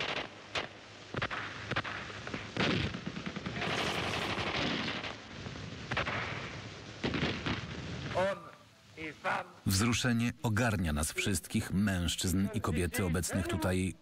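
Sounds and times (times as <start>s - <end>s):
gunshots: 0.0s - 5.2s.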